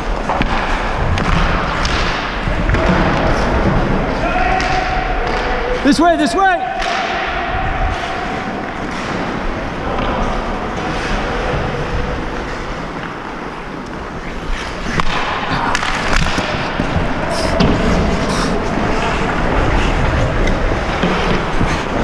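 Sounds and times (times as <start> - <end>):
skates scraping on ice: 7.1 - 22.0.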